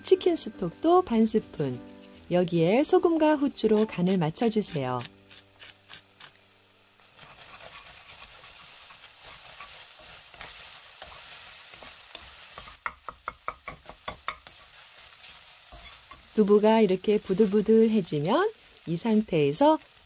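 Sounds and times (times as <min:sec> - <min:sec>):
food sizzling in a pan: 0:00.0 - 0:20.0
spatula scraping and tapping pan: 0:03.0 - 0:06.4, 0:07.1 - 0:16.3.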